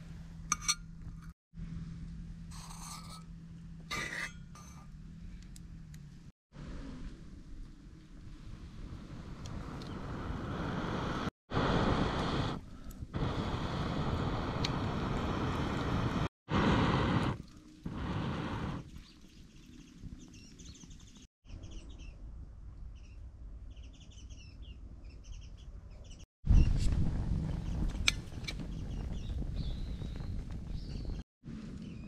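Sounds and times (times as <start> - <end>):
small birds chirping: 18.8 - 22.2, 22.9 - 26.8, 27.5 - 32.0.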